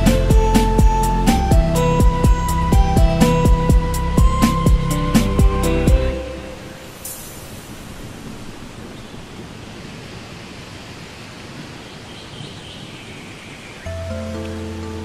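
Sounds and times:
music with bass and chords: 0.0 - 6.8
steady rushing noise: 0.0 - 11.8.

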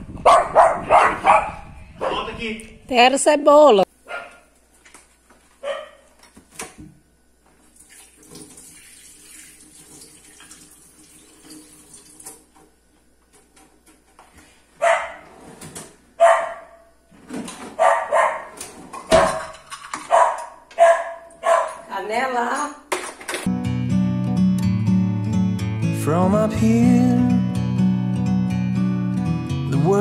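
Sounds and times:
dog barking: 0.2 - 2.3, 4.0 - 4.5, 5.6 - 6.2, 14.8 - 15.3, 16.2 - 16.9, 17.7 - 18.6, 19.2 - 21.9
tap running water: 7.6 - 12.7.

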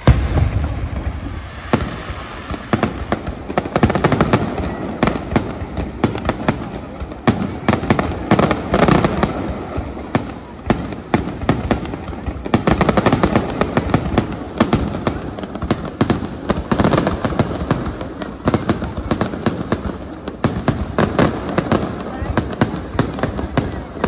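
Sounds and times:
fireworks bangs and crackles: 0.0 - 24.0.

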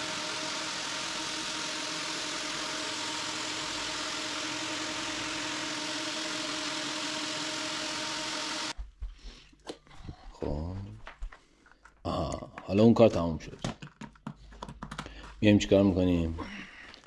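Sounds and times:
floor sander humming: 0.0 - 8.8.

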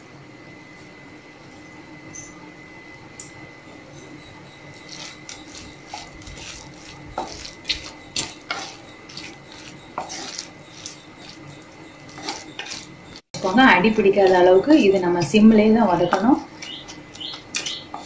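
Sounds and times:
spatula scraping clay pot: 4.6 - 15.3.

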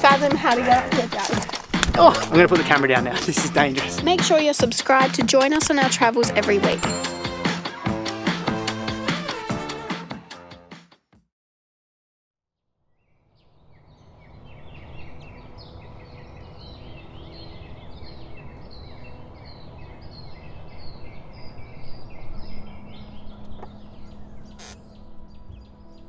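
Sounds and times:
birds chirping: 0.0 - 7.3, 13.0 - 26.0.

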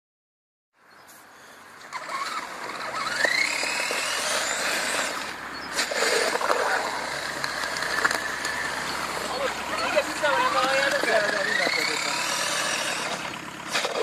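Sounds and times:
toy truck motor whining: 1.8 - 14.0
tyres hissing through slush: 2.1 - 10.5.

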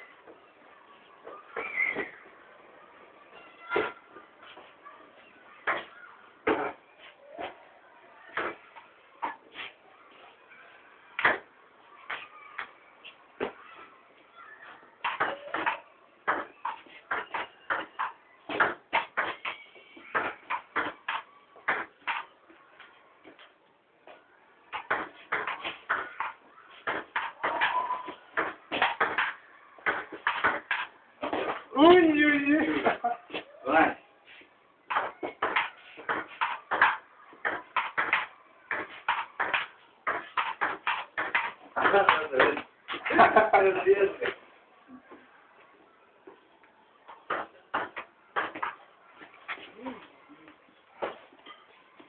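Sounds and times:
table tennis ball hits: 15.0 - 22.3, 24.7 - 31.6, 34.9 - 43.1, 47.2 - 48.8.

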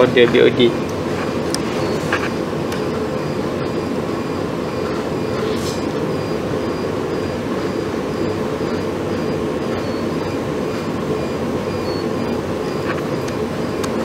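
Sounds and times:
lab equipment humming and rushing: 0.0 - 14.0
faint pulsing high tone: 2.8 - 14.0.

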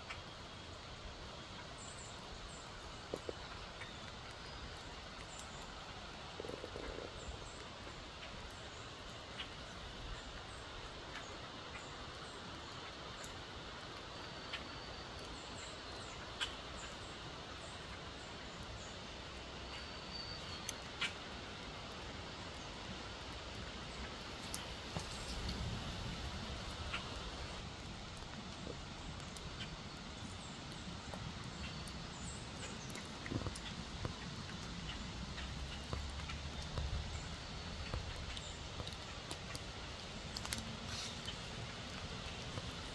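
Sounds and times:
steady hiss: 0.0 - 42.9
squirrel gnawing corn: 6.3 - 8.0.

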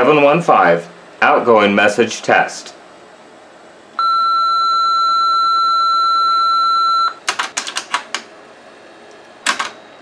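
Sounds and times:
answering machine beep: 4.0 - 7.2.

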